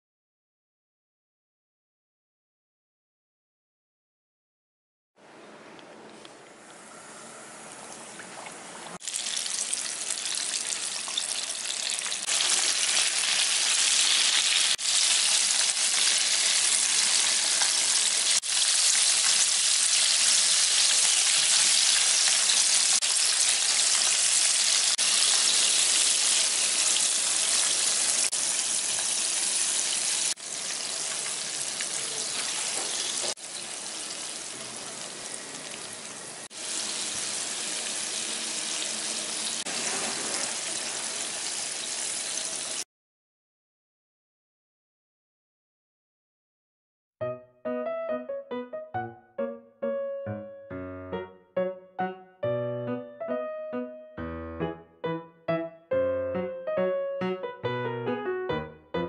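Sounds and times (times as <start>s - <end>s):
oil sizzling and crackling: 9.0s - 42.8s.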